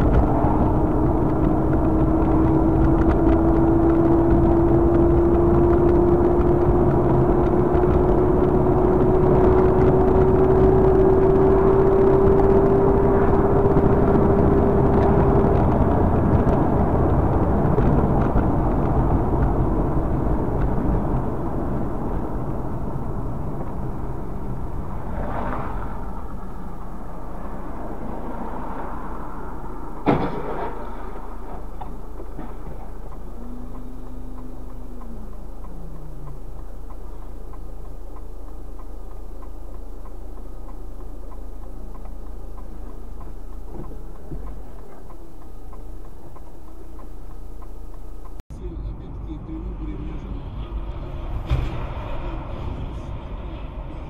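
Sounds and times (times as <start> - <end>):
rising whine: 0.0 - 48.4
car engine and tyre noise: 0.0 - 54.0
sharp knock: 30.0 - 31.2.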